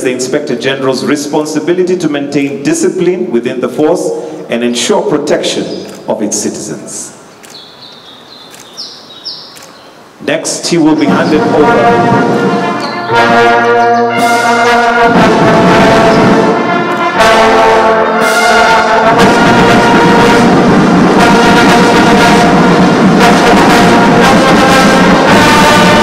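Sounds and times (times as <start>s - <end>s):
brass band playing chords: 10.3s - 26.0s.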